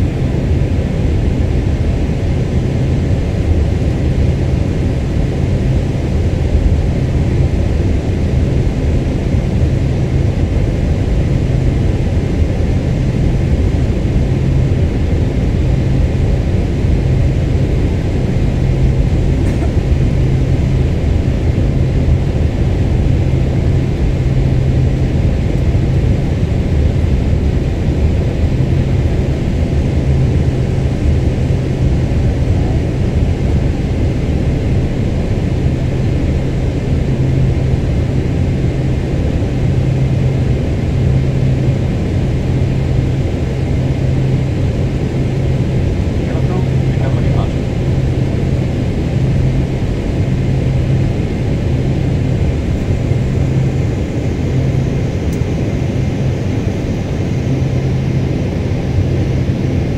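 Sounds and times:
airplane cabin engine noise: 0:00.0 - 0:59.9.

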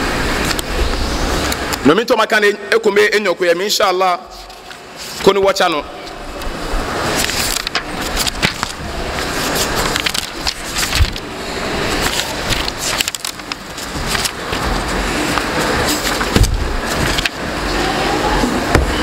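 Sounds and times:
book pages rustling: 0:04.3 - 0:05.4, 0:07.0 - 0:17.5.

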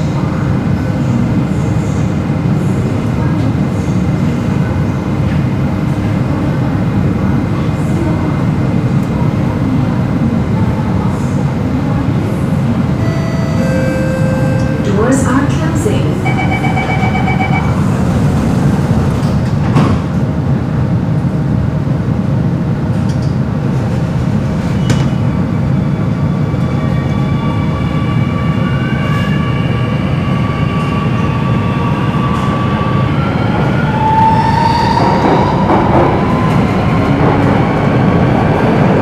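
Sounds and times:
train rumbling: 0:00.0 - 0:39.0
train doors shutting: 0:13.0 - 0:20.3, 0:22.9 - 0:25.4, 0:30.6 - 0:39.0.

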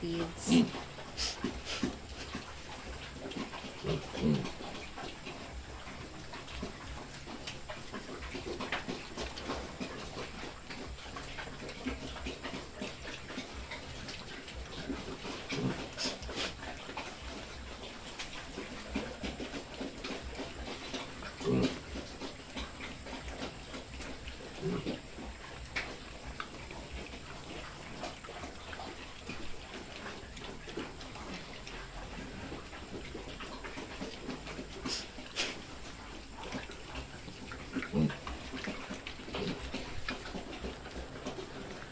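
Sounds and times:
piglets chewing and snuffling: 0:00.0 - 0:41.9
piglets grunting: 0:00.1 - 0:02.6, 0:03.4 - 0:05.7, 0:11.8 - 0:17.7, 0:20.2 - 0:25.7, 0:32.0 - 0:41.9
piglet grunts: 0:03.8 - 0:04.6, 0:15.3 - 0:16.6, 0:21.4 - 0:22.0.

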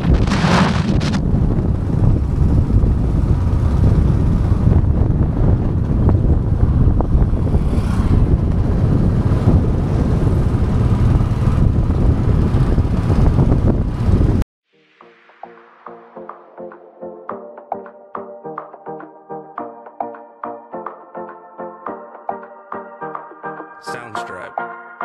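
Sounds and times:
motorcycle and road noise: 0:00.0 - 0:14.4
wind rumbling over microphone: 0:00.0 - 0:14.4.

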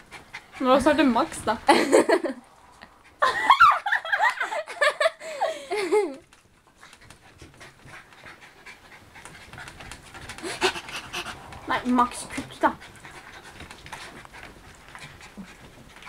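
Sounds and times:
dogs panting: 0:00.0 - 0:03.3, 0:04.2 - 0:16.0.

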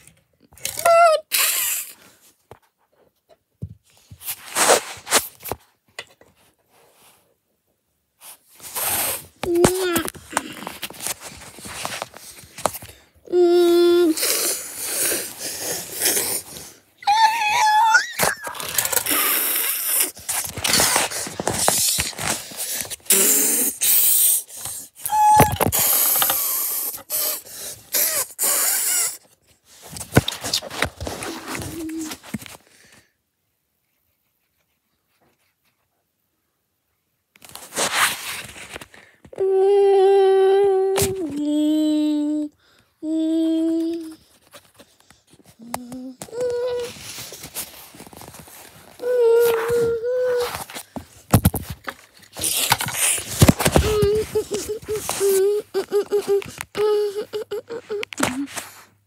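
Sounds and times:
rustling scrape: 0:04.0 - 0:05.6, 0:08.2 - 0:12.8, 0:37.4 - 0:39.0, 0:46.8 - 0:55.5.

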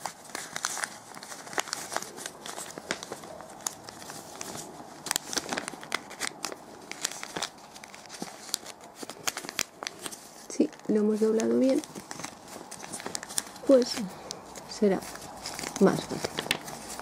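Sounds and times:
glossy paper crinkling: 0:00.0 - 0:17.0.

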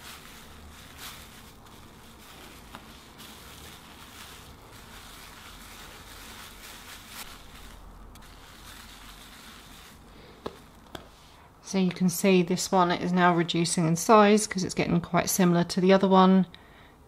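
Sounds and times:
bubble wrap rustling: 0:00.0 - 0:11.4.

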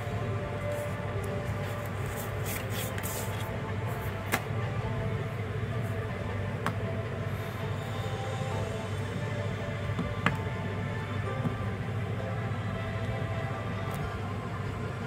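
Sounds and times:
steady low hum: 0:00.0 - 0:15.0
paper rustling: 0:01.6 - 0:03.5.

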